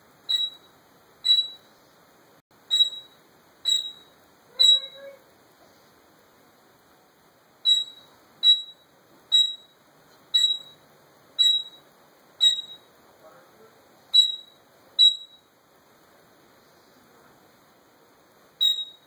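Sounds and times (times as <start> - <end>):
parrot mimicking electronic beeps: 0.3 - 1.6, 2.7 - 5.2, 7.6 - 9.7, 10.4 - 10.8, 11.4 - 11.8, 12.4 - 12.8, 14.1 - 15.4, 18.6 - 19.0.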